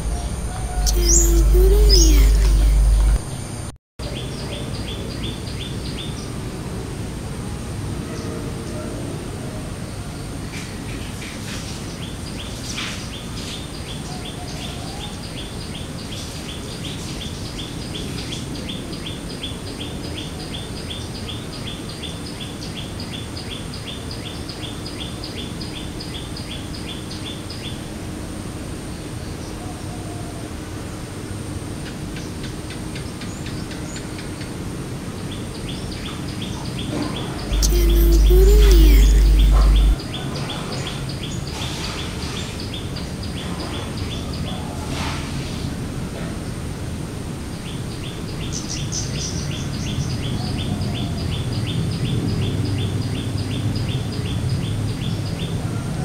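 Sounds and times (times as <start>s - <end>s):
small bird chirping: 0.1s - 3.2s, 36.0s - 40.0s
loud low rumble: 37.3s - 40.0s.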